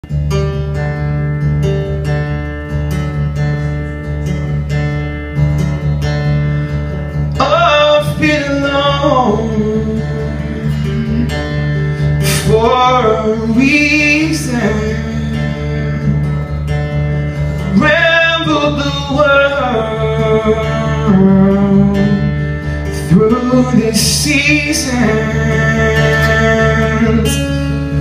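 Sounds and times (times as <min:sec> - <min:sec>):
acoustic guitar strumming: 0:00.0 - 0:28.0
man singing: 0:07.3 - 0:16.6, 0:17.4 - 0:28.0.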